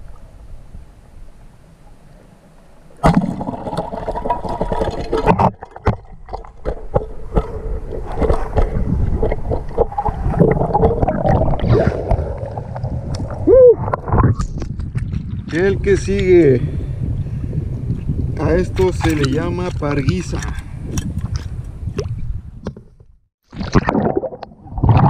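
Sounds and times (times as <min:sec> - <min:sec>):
water churning and splashing: 0:03.0 - 0:15.7.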